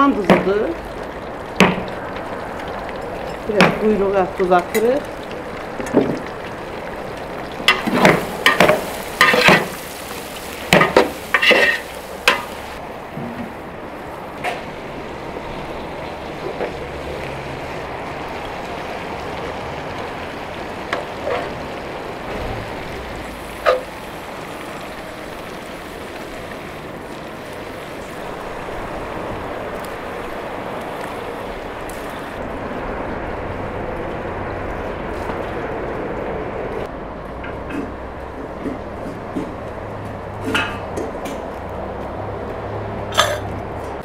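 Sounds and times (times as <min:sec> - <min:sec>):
pot boiling hiss: 0:00.0 - 0:36.9, 0:37.6 - 0:44.0
metal utensils clinking on pots: 0:03.1 - 0:05.1, 0:07.7 - 0:09.8, 0:10.7 - 0:12.5.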